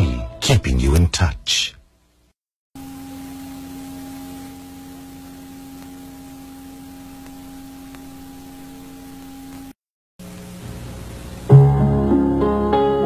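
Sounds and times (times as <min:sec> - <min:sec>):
electrical hum: 0:00.5 - 0:11.8.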